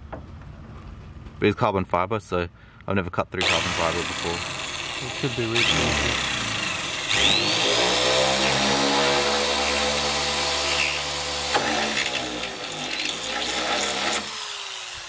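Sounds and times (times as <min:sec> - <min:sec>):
electric drill drilling: 0:03.4 - 0:15.0.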